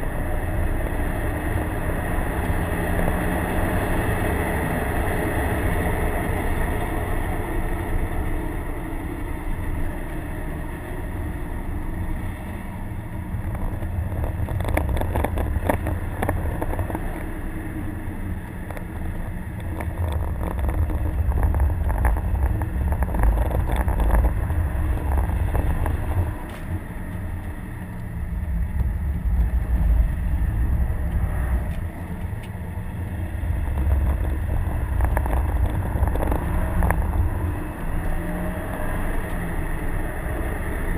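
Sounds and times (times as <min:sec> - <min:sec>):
car engine running: 0:00.0 - 0:40.9
heavy low rumble: 0:00.0 - 0:40.9.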